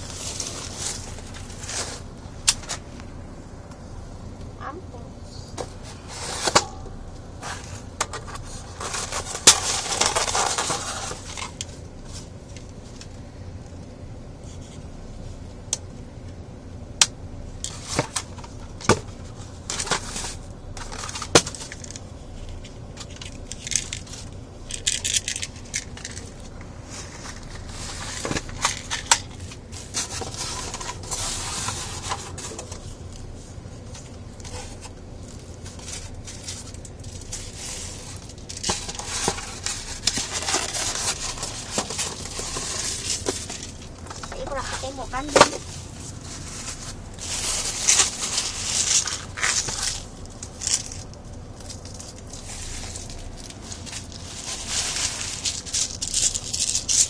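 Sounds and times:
rustling and scraping on foam: 0:00.0 - 0:02.9, 0:05.7 - 0:06.8, 0:07.4 - 0:12.4, 0:25.7 - 0:57.0.

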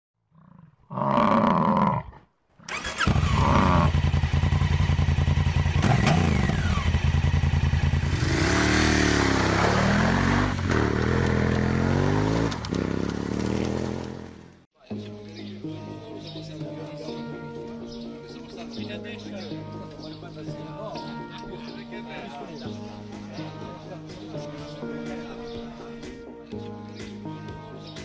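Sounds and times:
motorcycle engine idling and revving: 0:02.7 - 0:14.7.

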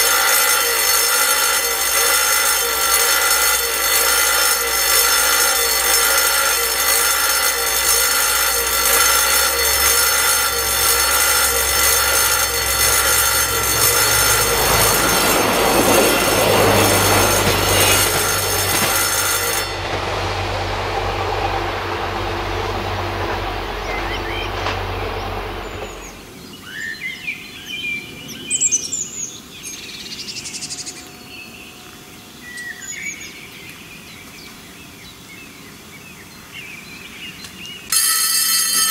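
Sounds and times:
diesel train rumbling past: 0:00.0 - 0:26.5
level crossing warning bell: 0:00.0 - 0:26.8, 0:37.9 - 0:38.9.

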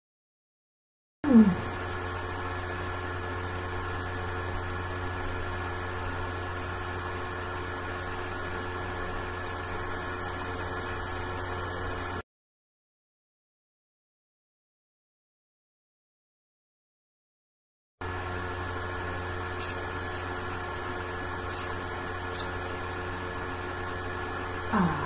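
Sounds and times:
machine-like hum with hiss: 0:01.2 - 0:12.2, 0:18.0 - 0:25.0.

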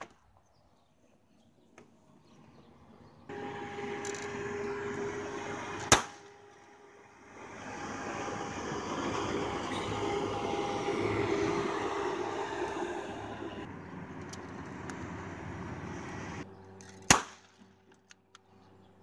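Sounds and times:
toy revolver bang: 0:05.9 - 0:06.2, 0:17.1 - 0:17.6
steady rushing noise: 0:07.1 - 0:13.7.

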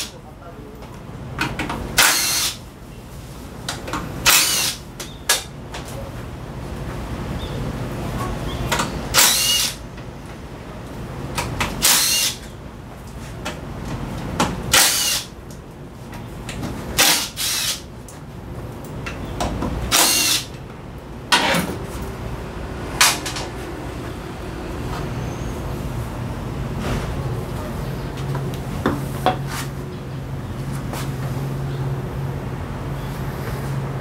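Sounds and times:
power drill short bursts: 0:02.0 - 0:02.6, 0:04.3 - 0:04.8, 0:09.1 - 0:09.8, 0:11.8 - 0:12.4, 0:14.7 - 0:15.3, 0:17.0 - 0:17.8, 0:19.9 - 0:20.5.

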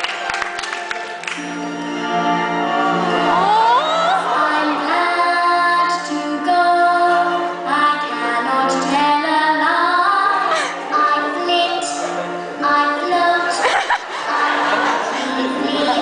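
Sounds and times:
musical accompaniment: 0:00.0 - 0:16.0
women singing: 0:03.4 - 0:16.0.

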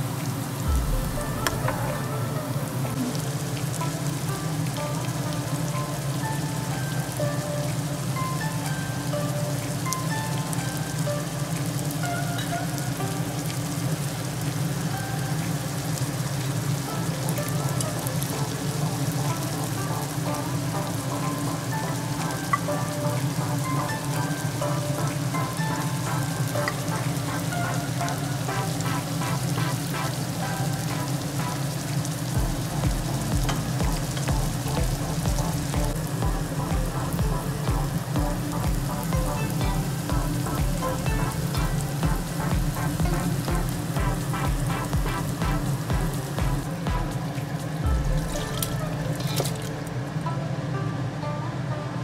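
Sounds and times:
vegetables sizzling in oil: 0:00.0 - 0:50.7
background music: 0:00.0 - 0:52.0
low hum: 0:00.3 - 0:04.0, 0:32.3 - 0:50.9
steady low beat: 0:00.6 - 0:04.3, 0:32.3 - 0:49.2.

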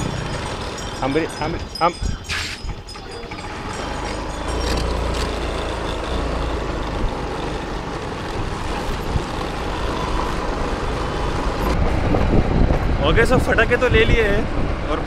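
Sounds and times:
wind on microphone: 0:00.0 - 0:03.0, 0:11.4 - 0:14.9
scooter engine rumble: 0:00.0 - 0:13.0.

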